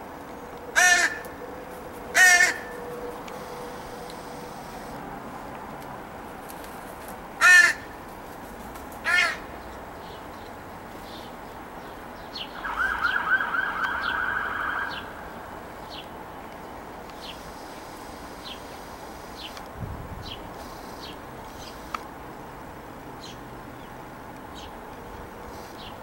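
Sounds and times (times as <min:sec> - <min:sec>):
wavering crow call: 0:00.7 - 0:04.4, 0:07.4 - 0:08.0, 0:09.0 - 0:09.5, 0:12.6 - 0:15.4
crows cawing: 0:00.8 - 0:01.5, 0:02.1 - 0:03.8, 0:07.4 - 0:08.0, 0:09.0 - 0:09.6.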